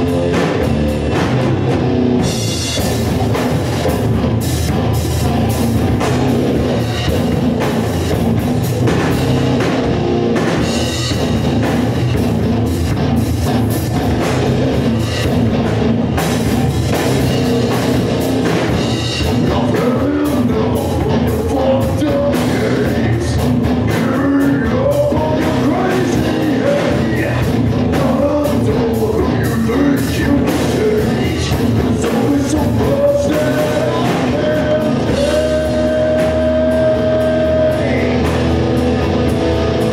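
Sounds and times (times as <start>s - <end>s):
bass guitar: 0.0s - 39.9s
drum kit: 0.0s - 39.9s
electric guitar: 0.0s - 39.9s
person singing into microphone: 19.3s - 38.4s.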